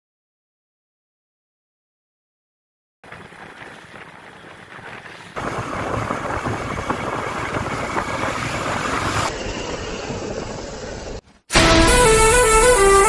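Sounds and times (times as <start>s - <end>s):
motorcycle engine and road noise: 3.0s - 12.2s
wind rushing over microphone: 4.4s - 11.1s.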